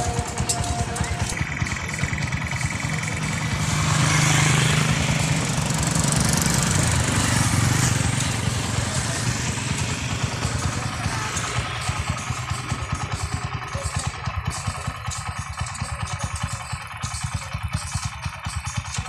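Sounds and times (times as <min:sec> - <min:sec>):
motorcycle passing by: 0:00.0 - 0:14.1.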